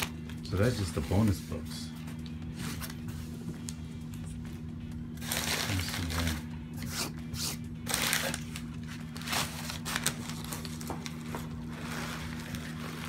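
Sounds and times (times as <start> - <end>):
steady low hum: 0.0 - 13.0
packaging rustling and crinkling: 5.2 - 6.4, 7.9 - 13.0.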